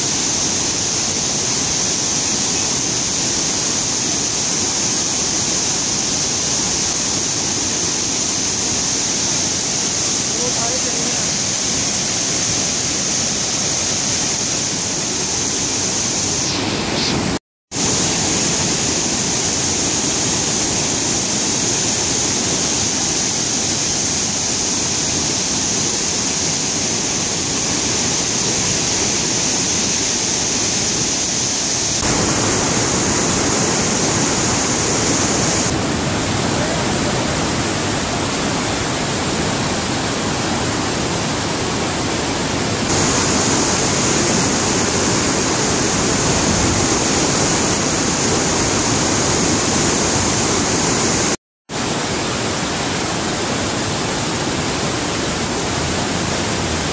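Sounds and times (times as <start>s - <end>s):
floodwater rushing through gates: 31.4s - 56.9s.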